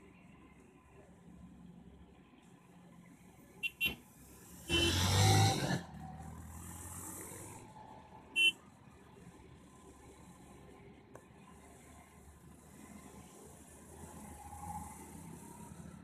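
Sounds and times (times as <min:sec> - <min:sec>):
faint road noise: 0:00.0 - 0:16.0
vehicle horn beeps: 0:04.7 - 0:05.2, 0:08.4 - 0:08.6.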